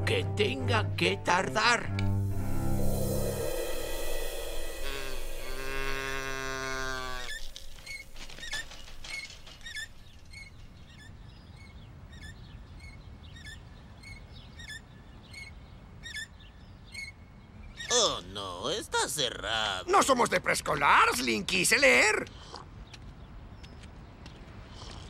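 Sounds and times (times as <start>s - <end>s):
orchestral music: 1.8s - 8.3s
shopping cart wheel squeaking: 7.8s - 10.6s.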